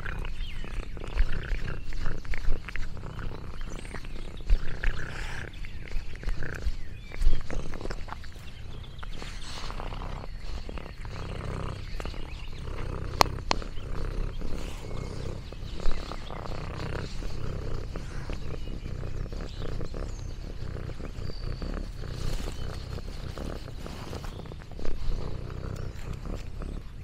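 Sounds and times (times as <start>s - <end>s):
cat purring: 0.0s - 27.0s.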